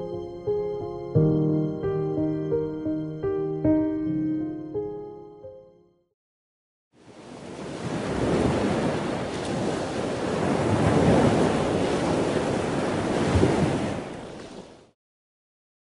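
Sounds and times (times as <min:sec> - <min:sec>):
ocean surf washing in: 0:07.0 - 0:15.0.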